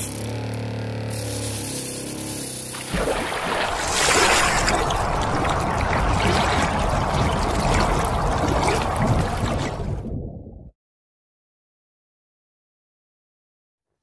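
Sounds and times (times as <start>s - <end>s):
faint small motor hum: 0.0s - 3.8s
rushing splashing water: 2.7s - 10.1s.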